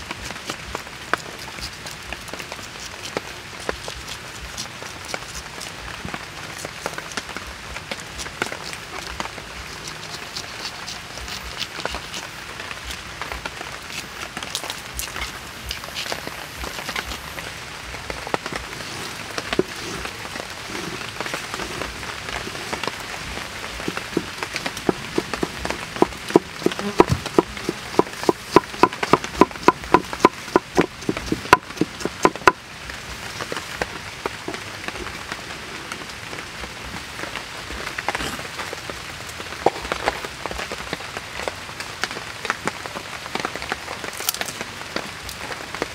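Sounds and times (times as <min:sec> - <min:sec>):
knife cutting pineapple: 0:00.2 - 0:05.8, 0:07.9 - 0:13.0, 0:13.9 - 0:17.4, 0:18.6 - 0:32.6
knife chopping on wooden board: 0:23.8 - 0:32.6.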